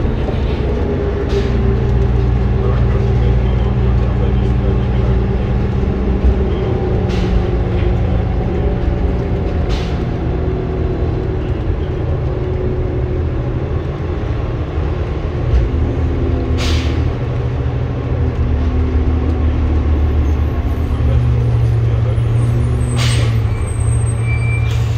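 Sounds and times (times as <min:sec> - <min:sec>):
bus engine running: 0:00.0 - 0:24.9
air brakes hissing: 0:16.6 - 0:17.1, 0:22.8 - 0:24.9.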